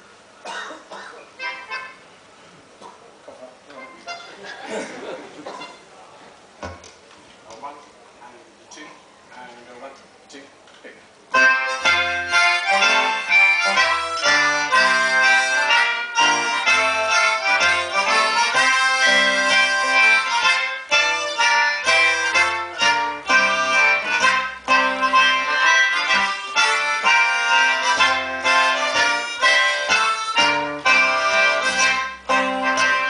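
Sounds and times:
free-reed instruments: 0.0s - 7.5s, 11.1s - 33.0s
trumpet: 11.4s - 33.0s
trombone: 11.8s - 33.0s.

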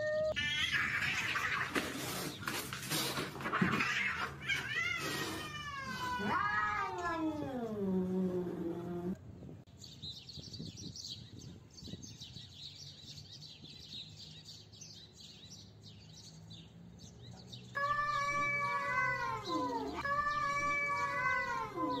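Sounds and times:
cats yowling: 0.0s - 1.9s, 3.4s - 9.2s, 17.7s - 22.0s.

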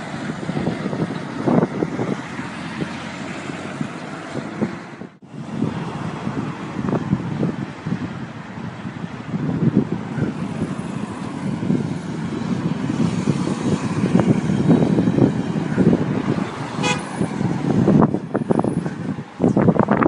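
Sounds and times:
truck engine and tyres rumbling: 0.0s - 20.0s
short horn toot: 16.8s - 17.1s.

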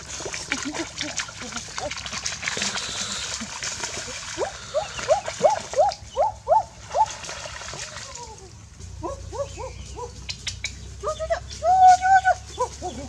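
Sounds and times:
splashing in shallow water: 0.0s - 8.7s.

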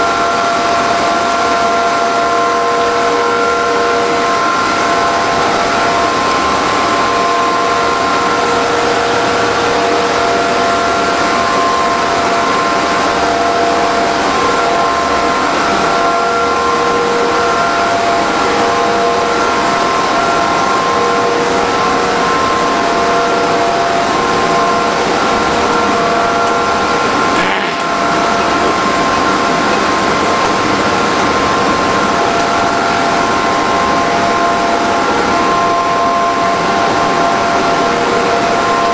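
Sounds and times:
industrial machine din: 17.9s - 36.8s.

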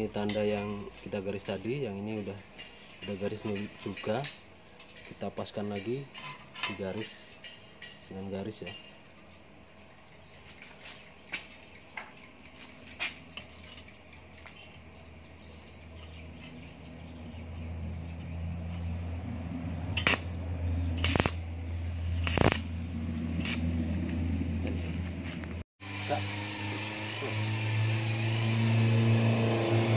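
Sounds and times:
welder electric hum: 16.3s - 29.9s
welding arc crackles: 20.0s - 20.3s, 21.0s - 22.8s, 23.4s - 23.7s.

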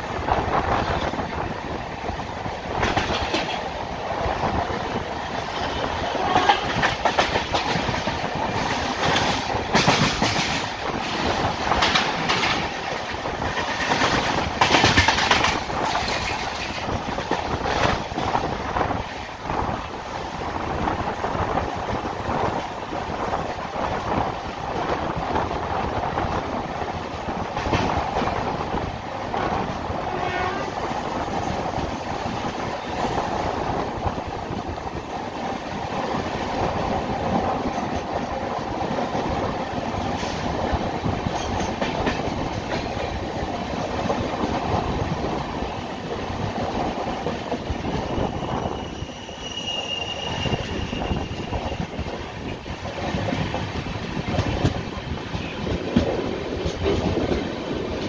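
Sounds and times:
train rumbling on rails: 0.0s - 58.0s
wheels clacking over rail joints: 2.7s - 3.8s, 5.0s - 19.2s, 31.3s - 46.0s, 50.6s - 58.0s.

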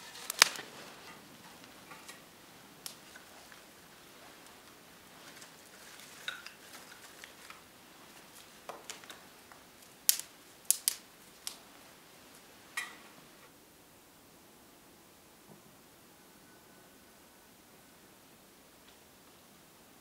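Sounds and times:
sharp cracks: 0.0s - 3.8s, 4.4s - 11.8s.

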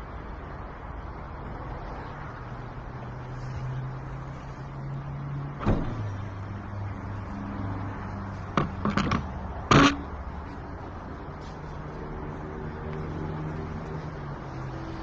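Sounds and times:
sharp knocks and clicks: 8.5s - 10.0s.

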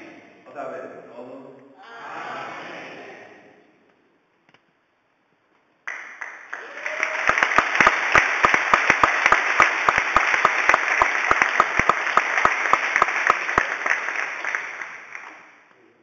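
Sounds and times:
crowd applauding: 5.9s - 15.7s
close sharp claps: 5.9s - 15.8s.

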